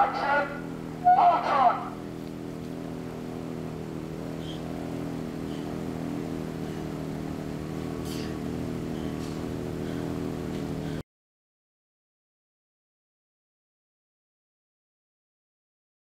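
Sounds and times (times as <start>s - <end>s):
engine drone: 0.0s - 11.0s.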